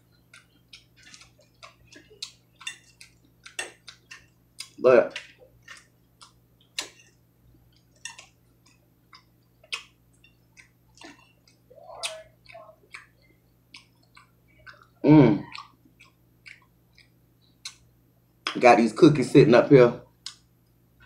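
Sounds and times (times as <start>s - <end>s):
crunchy salad chewing: 0.0s - 17.9s
steady low hum: 0.0s - 21.0s.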